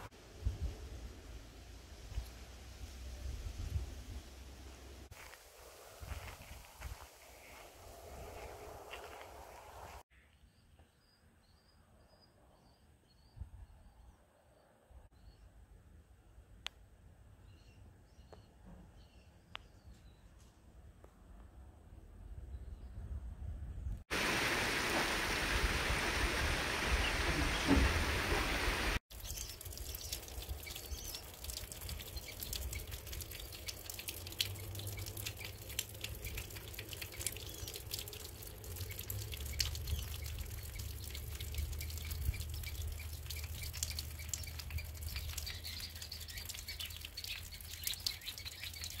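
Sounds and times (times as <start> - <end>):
wind rumbling on microphone: 0.0 - 1.3, 2.1 - 10.0, 22.0 - 34.9
even rushing hiss: 24.1 - 29.0
faint scattered ticks and clicks: 29.2 - 49.0.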